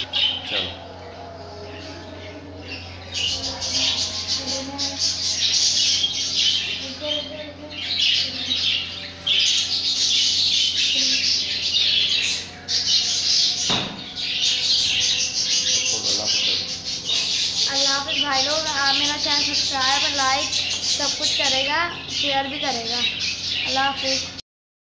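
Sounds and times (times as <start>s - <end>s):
budgerigars chattering and squawking: 0.0s - 24.4s
sharp knock: 13.7s - 14.1s.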